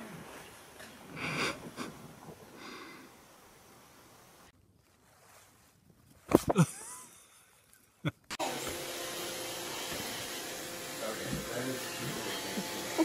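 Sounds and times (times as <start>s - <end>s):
robot vacuum cleaner humming: 8.4s - 13.0s.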